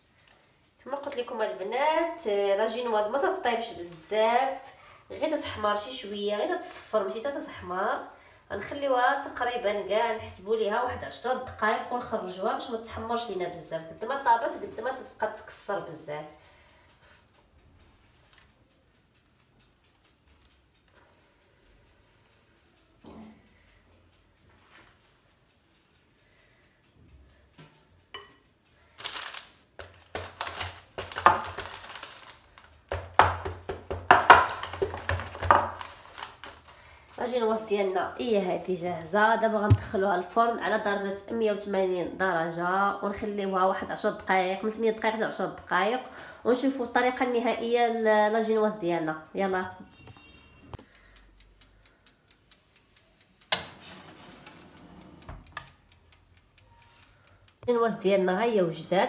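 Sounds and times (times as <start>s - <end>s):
oven timer ticking: 0.0s - 59.0s
mixing bowl knocking on stone: 32.9s - 35.9s, 39.7s - 40.0s.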